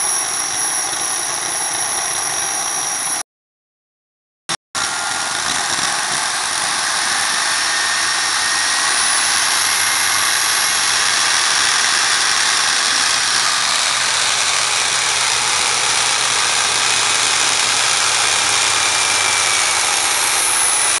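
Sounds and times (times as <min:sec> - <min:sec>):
loud jet hiss and whine: 0:00.0 - 0:03.2, 0:04.8 - 0:21.0
gas turbine engine running: 0:04.8 - 0:21.0.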